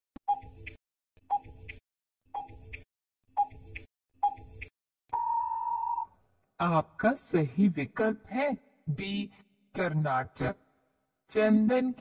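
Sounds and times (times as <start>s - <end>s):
timer ticks: 0.2s - 1.8s, 2.4s - 2.8s, 3.4s - 4.7s
steady beep: 5.2s - 6.1s.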